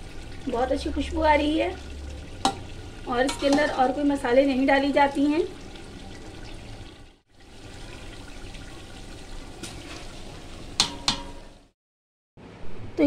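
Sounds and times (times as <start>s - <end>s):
food sizzling in a pot: 0.0s - 11.8s
metal ladle clinking on pot: 2.4s - 3.9s, 10.8s - 11.5s.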